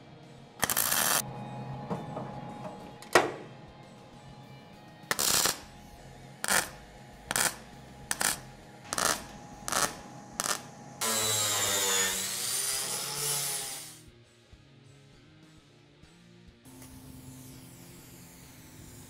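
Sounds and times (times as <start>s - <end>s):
welding arc crackle: 0.6s - 1.2s, 5.1s - 5.7s, 6.4s - 12.1s
angle grinder whine: 7.3s - 14.0s.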